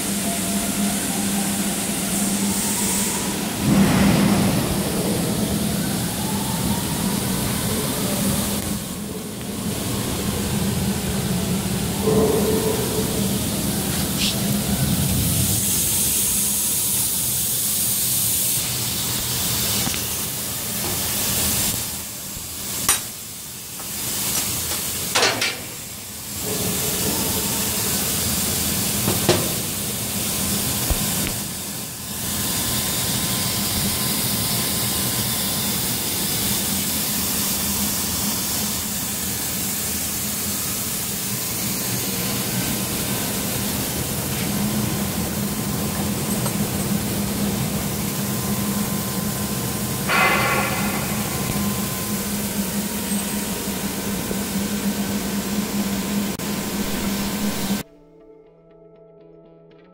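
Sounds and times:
laser cutting machine humming: 25.7 - 57.8.

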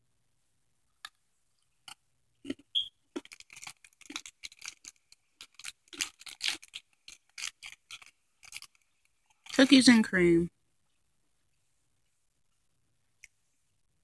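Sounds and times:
plastic wrapper crinkling: 1.0 - 10.1.

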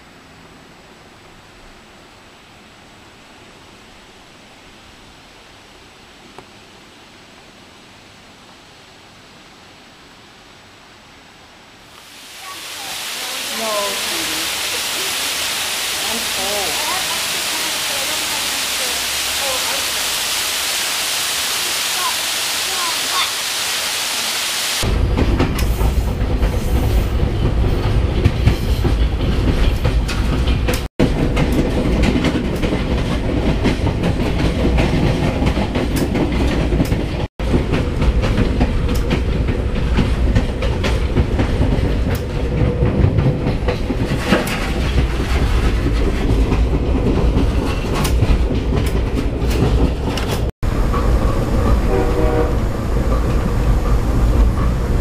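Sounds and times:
waterfall rush: 0.2 - 25.0
train rumbling inside passenger car: 12.4 - 20.6, 21.9 - 23.4, 24.8 - 55.0
wheels clicking over rail joints: 24.9 - 55.0.

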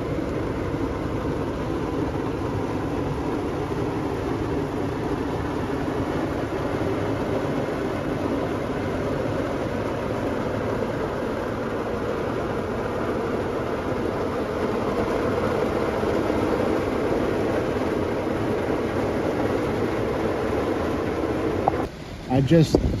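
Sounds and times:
heavy rain on a vehicle roof: 0.0 - 22.7.

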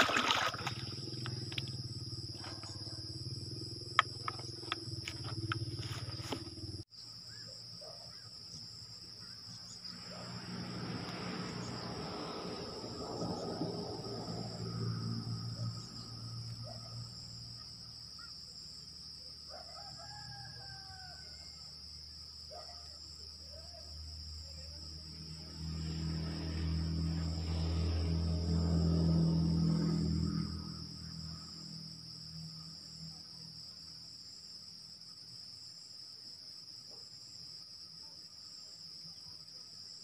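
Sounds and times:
insect drone: 0.0 - 40.0
rooster crowing: 19.5 - 21.8.

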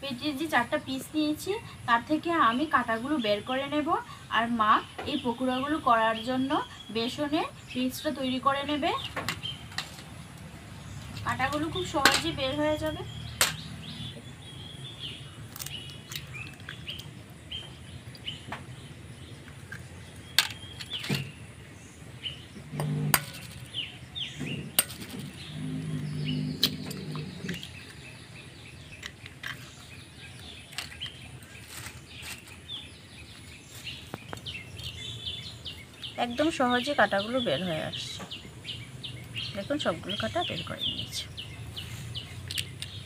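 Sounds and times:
birds chirping: 0.0 - 43.0
eggs cracking against steel bowl: 15.5 - 17.2, 22.7 - 23.7, 26.6 - 28.1.

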